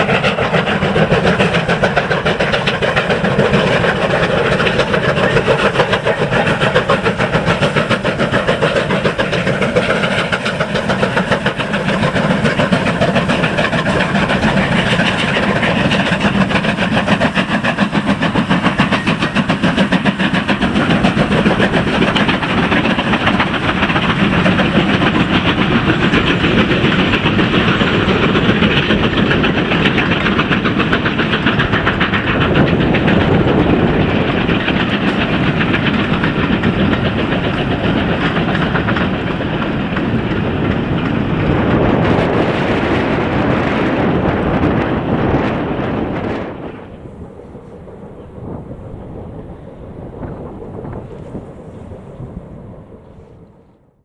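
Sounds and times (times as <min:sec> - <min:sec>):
steam locomotive chuffing: 0:00.0 - 0:54.0
train coaches rolling past: 0:00.0 - 0:54.0.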